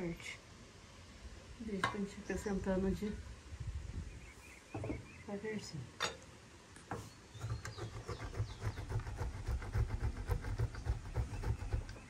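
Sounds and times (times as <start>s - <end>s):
cheese grating on grater: 7.4s - 12.0s.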